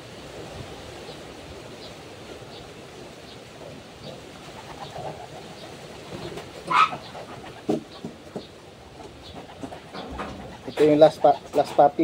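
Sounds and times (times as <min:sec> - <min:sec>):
pigeons cooing: 0:02.6 - 0:12.0.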